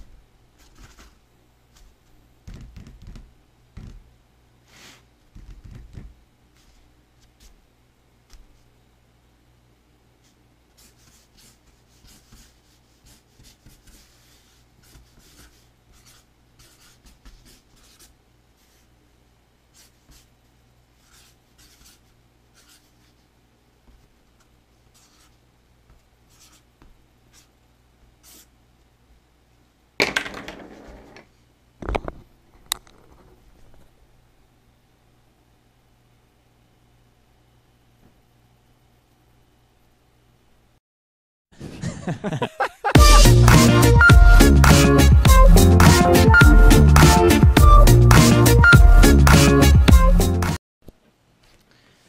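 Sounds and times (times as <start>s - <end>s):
marker pen scratching cardboard: 10.2s - 18.9s, 21.0s - 23.2s, 23.9s - 26.7s.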